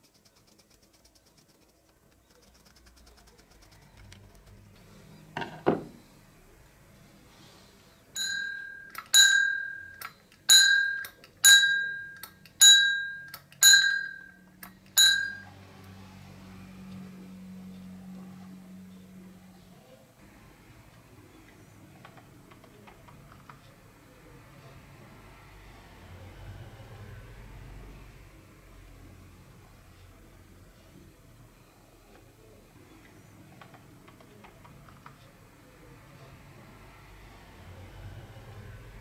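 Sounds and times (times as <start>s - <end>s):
bicycle bell ringing: 8.2s - 14.4s, 15.0s - 15.5s.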